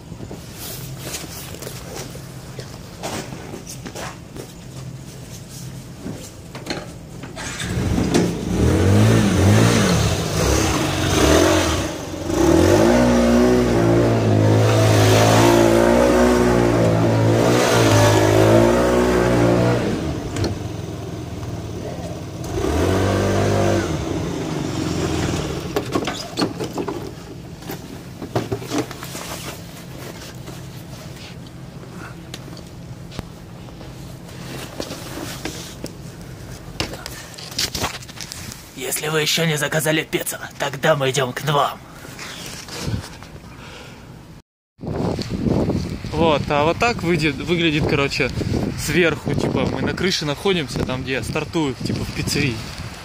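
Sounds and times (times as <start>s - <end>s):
scooter engine revving past: 7.4s - 21.8s, 22.4s - 25.8s.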